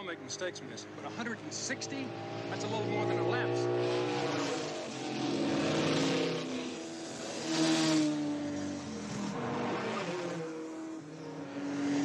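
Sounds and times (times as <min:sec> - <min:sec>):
cars speeding past: 0:00.0 - 0:12.0.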